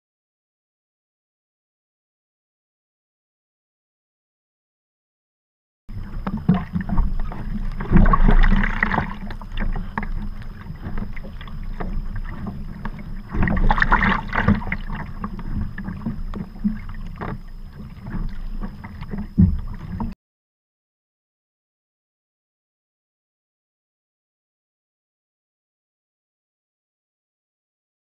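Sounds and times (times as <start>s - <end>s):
paddle strokes splashing water: 5.9s - 20.2s
wind rumble on microphone: 5.9s - 20.2s.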